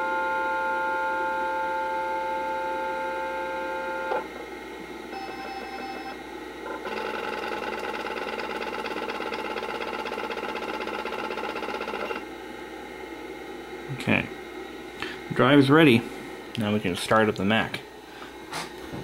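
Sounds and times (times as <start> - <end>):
hard drive spinning up: 0.0 - 13.4
hard drive whine: 0.0 - 19.0
rapid ticking buzz: 6.9 - 12.3.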